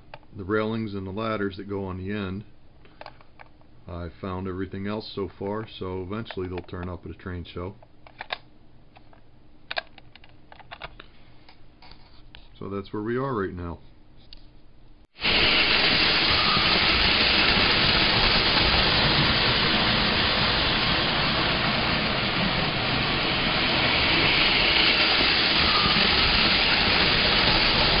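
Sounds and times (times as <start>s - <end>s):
model train running on track: 15.2s - 28.0s.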